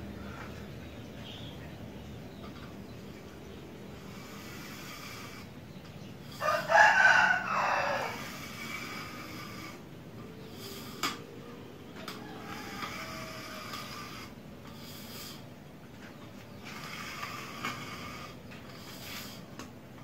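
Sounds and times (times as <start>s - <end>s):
rooster crowing: 6.4s - 8.4s, 12.0s - 14.0s.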